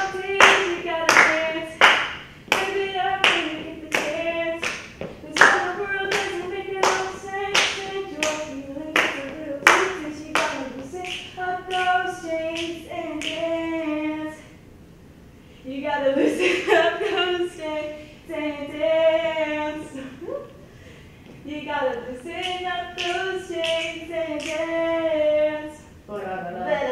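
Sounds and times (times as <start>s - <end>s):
person singing unaccompanied: 0.0s - 14.5s, 21.5s - 26.9s
hand claps: 0.3s - 8.4s, 9.0s - 12.0s, 22.4s - 24.6s.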